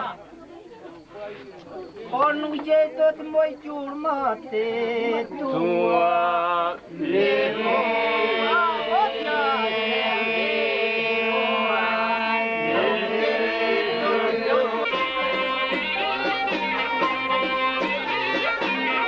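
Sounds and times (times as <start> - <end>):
men singing folk song: 4.2 - 15.9
steady held drone: 7.0 - 17.6.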